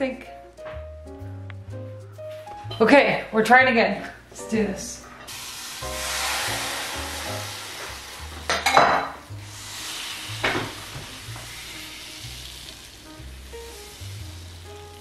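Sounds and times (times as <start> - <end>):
batter sizzling in a pan: 5.2 - 15.0.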